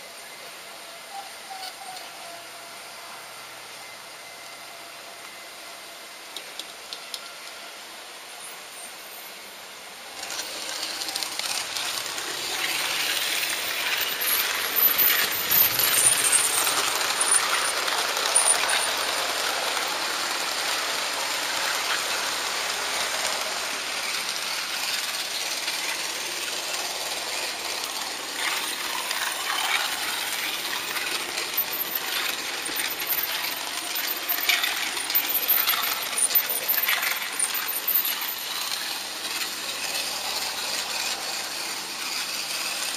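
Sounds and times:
model train rattling on track: 0.0s - 42.9s
wheels clicking over rail joints: 10.0s - 42.9s.

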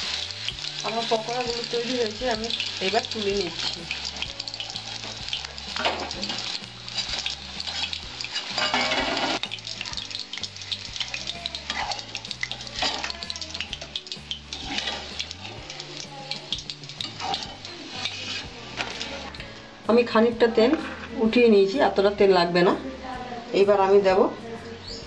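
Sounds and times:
food sizzling in hot oil: 0.0s - 25.0s
metal spoon clinking and scraping: 0.1s - 19.4s.

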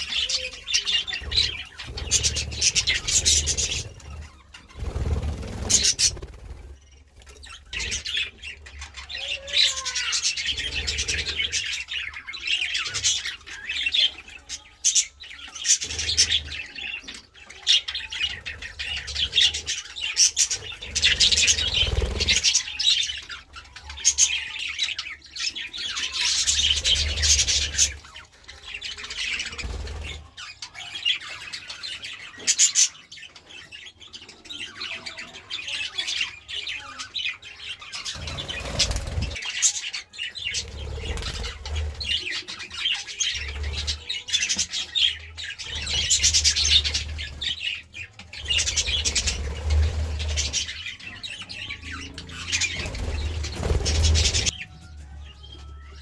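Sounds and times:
budgerigars chirping: 0.0s - 6.6s, 7.4s - 55.4s.

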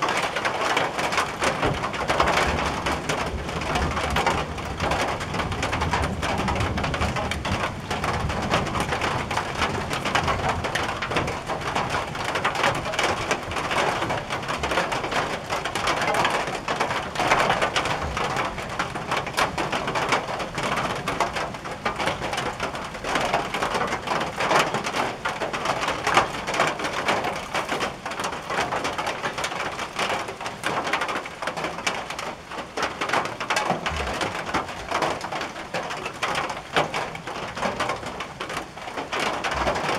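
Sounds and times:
heavy rain on a tin roof: 0.0s - 39.9s.

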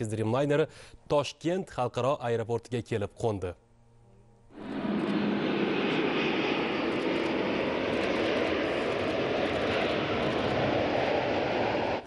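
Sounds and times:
jet engines landing: 4.5s - 12.0s.

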